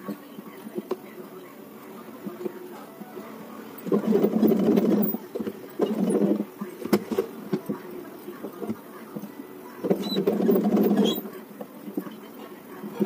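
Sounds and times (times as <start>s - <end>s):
sewing machine stitching: 3.8s - 6.4s, 9.8s - 11.2s.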